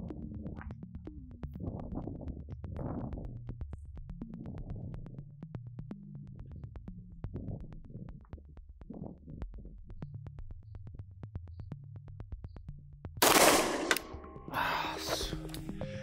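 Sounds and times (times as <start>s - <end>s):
electronic music with ticking beat: 0.0s - 13.1s
pistol shot: 13.2s - 14.5s.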